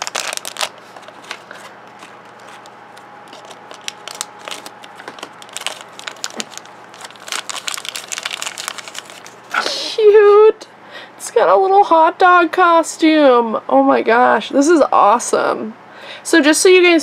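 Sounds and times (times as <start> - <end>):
plastic wrapper crackling: 0.0 - 9.6.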